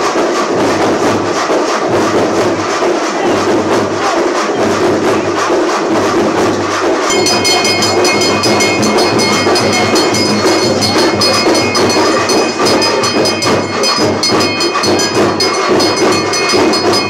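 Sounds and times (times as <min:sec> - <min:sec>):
rhythmic drumming and clanging: 0:00.0 - 0:17.0
bell ringing: 0:07.1 - 0:17.0.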